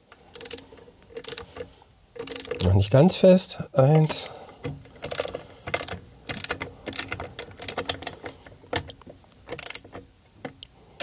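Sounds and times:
ratchet wrench clicking: 0:00.3 - 0:01.5, 0:02.2 - 0:02.6, 0:05.0 - 0:08.2, 0:09.5 - 0:09.8.

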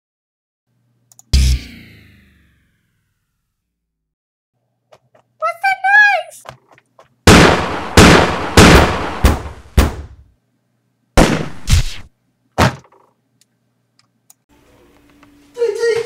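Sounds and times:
loud sharp bangs with echo: 0:07.3 - 0:10.2, 0:11.2 - 0:12.0.

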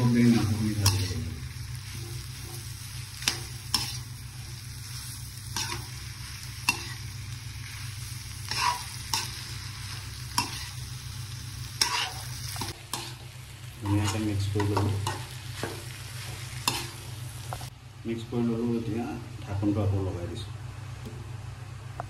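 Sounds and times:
food sizzling in a wok: 0:00.0 - 0:17.7
metal spatula scraping a wok: 0:00.5 - 0:07.8, 0:08.4 - 0:10.8, 0:11.8 - 0:17.1.

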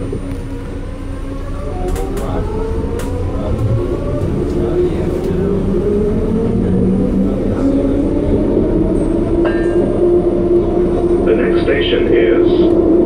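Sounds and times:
train rumble and hum: 0:00.0 - 0:13.0
brief higher tone: 0:10.7 - 0:11.6.

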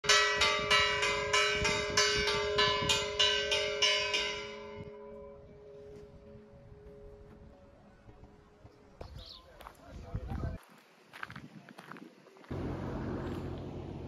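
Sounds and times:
church bell ringing: 0:00.0 - 0:06.0.

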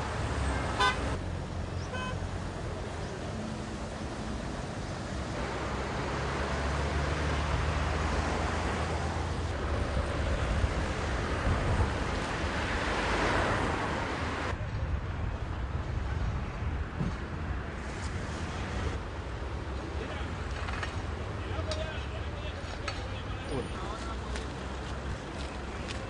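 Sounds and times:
wind rumbling on microphone: 0:09.4 - 0:19.2.

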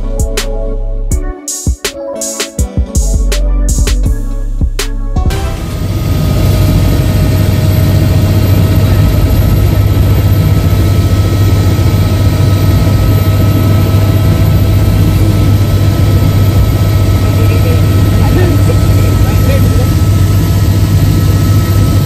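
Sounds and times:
helicopter rotor drone: 0:05.2 - 0:22.0
helicopter whine: 0:05.2 - 0:22.0.

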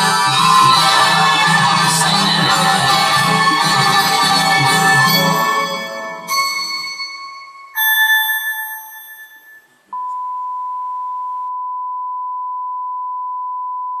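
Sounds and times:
steady high test tone: 0:00.0 - 0:09.9
ringing music note: 0:04.8 - 0:09.8.

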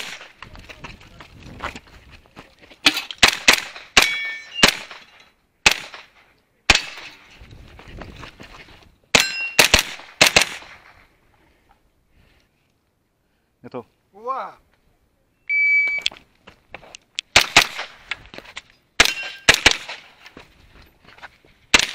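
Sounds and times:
carbine gunshots: 0:02.8 - 0:07.2, 0:09.2 - 0:11.0, 0:17.3 - 0:18.0, 0:19.0 - 0:20.2
metallic ring of steel targets: 0:03.9 - 0:05.3, 0:09.2 - 0:09.7, 0:19.0 - 0:19.7.

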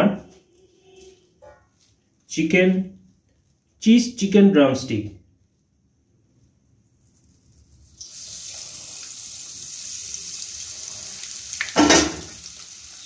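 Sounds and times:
chicken frying in hot oil: 0:07.0 - 0:13.0.

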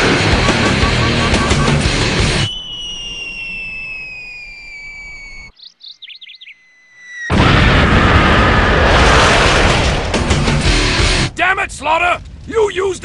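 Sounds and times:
falling bomb whistle: 0:00.0 - 0:05.5, 0:06.5 - 0:08.8
birds chirping: 0:00.0 - 0:07.3
loud explosion blast: 0:07.3 - 0:11.3.

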